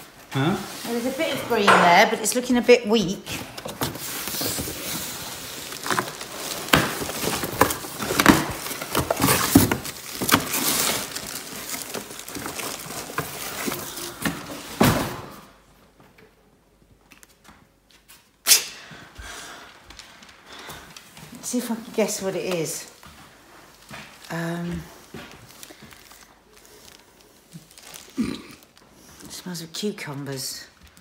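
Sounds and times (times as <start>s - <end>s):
packaging rustling and crinkling: 2.2s - 15.0s, 19.7s - 31.0s.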